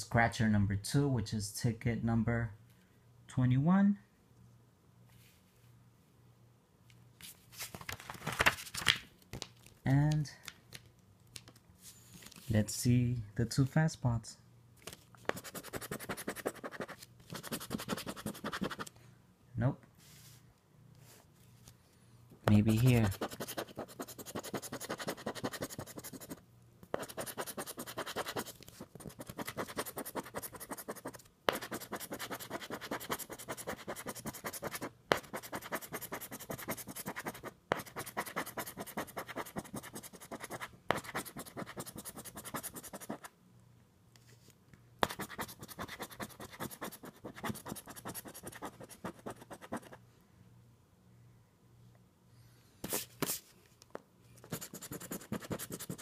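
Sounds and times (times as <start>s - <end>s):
lottery ticket being scratched: 15.3s - 18.9s, 22.7s - 26.4s, 27.0s - 43.3s, 54.5s - 56.0s.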